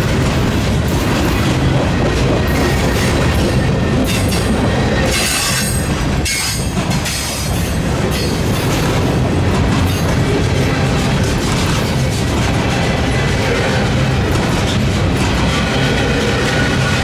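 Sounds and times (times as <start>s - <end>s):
steel wheels rolling on rail: 0.0s - 17.0s
train wheel squeal: 1.3s - 9.1s, 9.8s - 17.0s.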